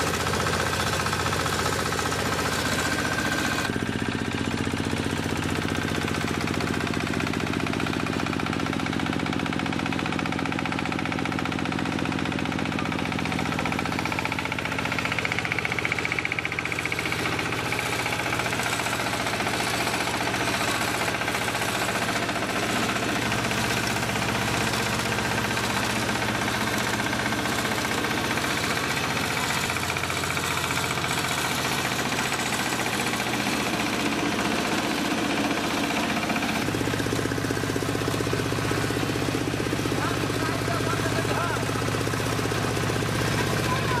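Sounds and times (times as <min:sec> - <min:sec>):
diesel engine knocking: 0:00.0 - 0:44.0.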